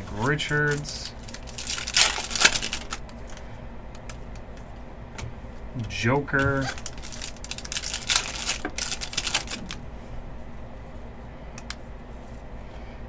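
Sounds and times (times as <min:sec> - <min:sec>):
trading cards rustling and clicking: 0:00.0 - 0:04.7, 0:05.8 - 0:09.8.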